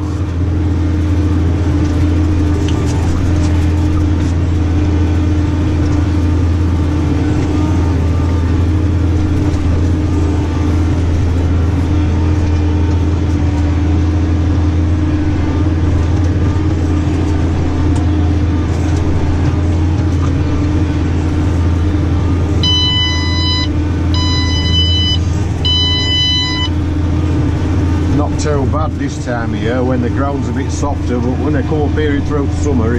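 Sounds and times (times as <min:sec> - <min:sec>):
tractor engine drone: 0:00.0 - 0:32.9
electronic beeps: 0:22.6 - 0:26.8.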